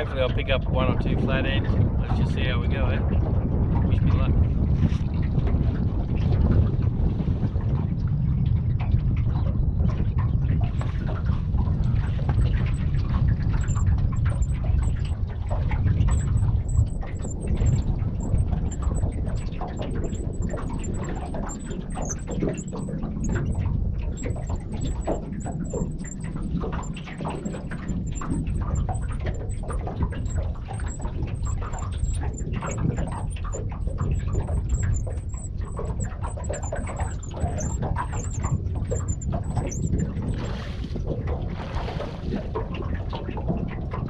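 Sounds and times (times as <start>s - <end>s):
water slapping against hull: 0.0s - 44.0s
wind rumbling on microphone: 0.0s - 44.0s
faint high chirps: 13.6s - 23.6s, 24.2s - 40.5s
small knocks and clicks: 13.6s - 40.5s.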